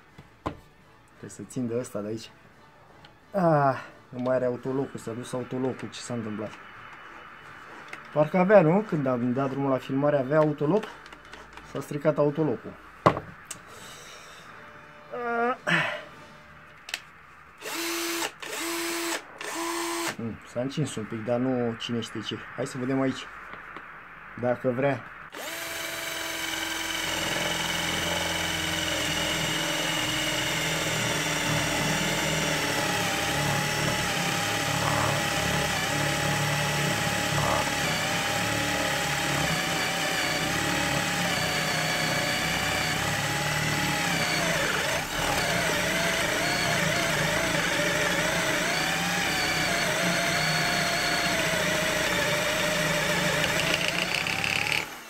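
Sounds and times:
cordless drill boring into wood: 17.6s - 20.2s, 25.3s - 55.0s.

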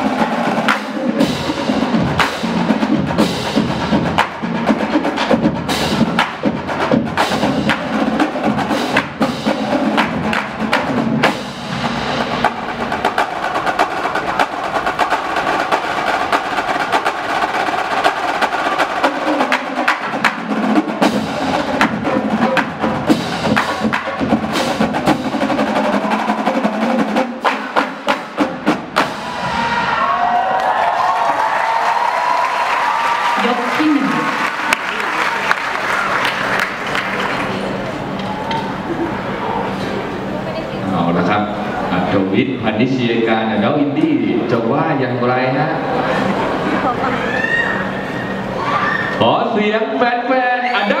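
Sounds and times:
crowd cheering: 0.0s - 2.2s, 25.4s - 27.3s, 29.0s - 40.1s, 45.8s - 49.3s
drumline playing: 0.0s - 49.8s.

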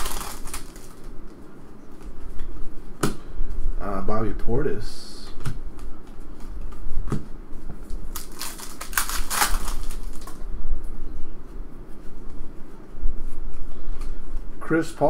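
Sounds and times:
plastic wrapper crinkling: 0.0s - 1.2s, 7.8s - 10.4s.

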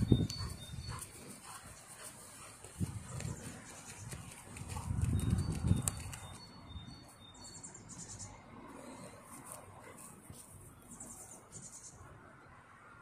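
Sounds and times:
dog paws scratching soil: 0.0s - 6.4s, 8.7s - 11.9s.

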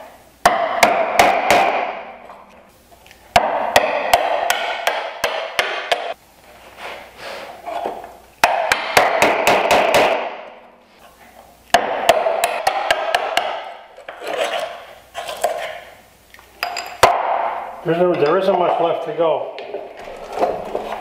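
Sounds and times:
mallet striking chisel: 0.4s - 2.1s, 3.3s - 6.2s, 11.7s - 13.8s.

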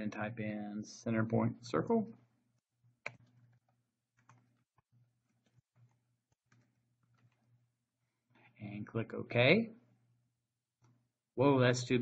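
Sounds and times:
keyboard typing clicks: 3.0s - 4.6s, 5.3s - 7.5s.

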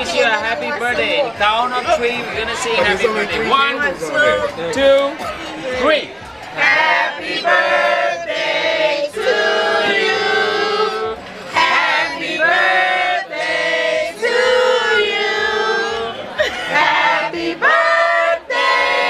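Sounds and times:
group singing in chorus: 6.5s - 19.0s.

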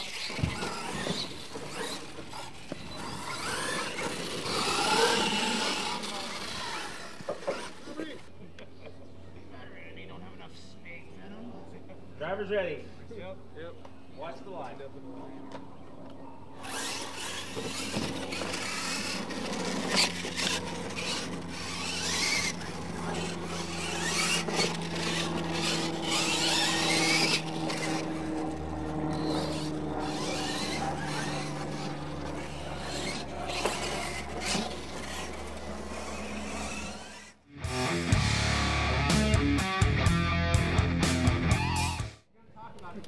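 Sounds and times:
tyres scrabbling on dirt: 0.0s - 8.3s, 16.6s - 37.4s
electric motors whining: 0.0s - 9.2s, 13.8s - 38.3s.

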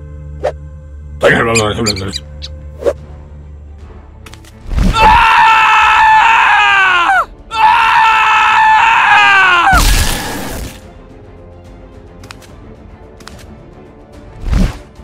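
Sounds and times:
high screams: 4.9s - 10.6s.

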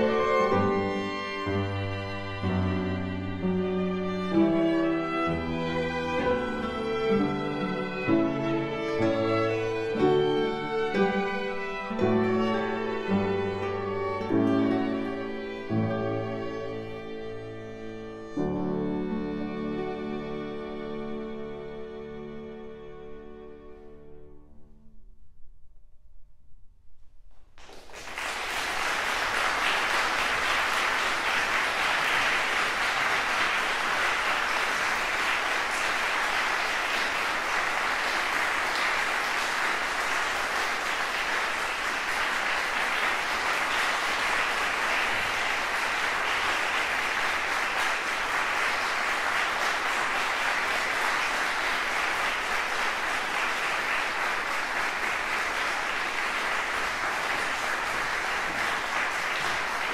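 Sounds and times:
audience applauding: 0.0s - 18.3s, 27.6s - 59.9s
music: 0.0s - 26.3s.

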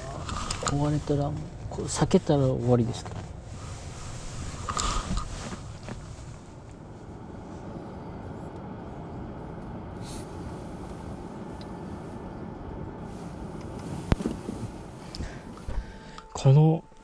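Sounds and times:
car cabin running noise: 0.0s - 17.0s.

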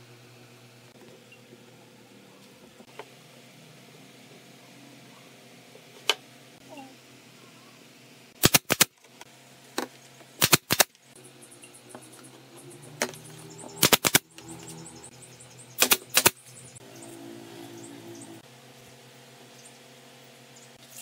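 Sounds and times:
pneumatic nailer shots: 8.4s - 8.9s, 10.4s - 10.9s, 13.8s - 14.4s, 15.8s - 16.4s.

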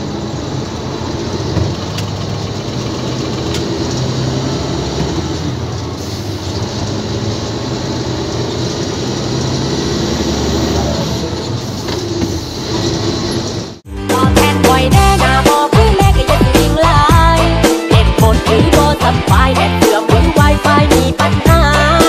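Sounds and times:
road rumble: 0.0s - 13.9s
diesel truck engine running: 0.0s - 22.0s
music: 13.9s - 22.0s.

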